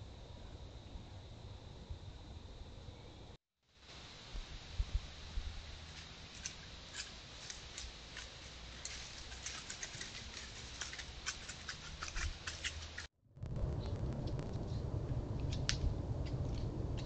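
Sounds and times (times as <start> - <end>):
faint outdoor hiss: 0.0 - 17.0
steady low rumble: 4.0 - 6.9, 12.8 - 17.0
dry leaves crackling: 5.6 - 13.1.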